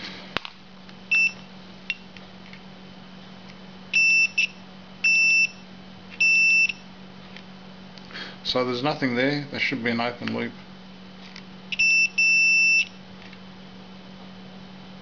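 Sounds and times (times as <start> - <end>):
multimeter beeps: 1.1 - 2.0, 3.9 - 5.6, 6.2 - 6.9, 11.7 - 13.0.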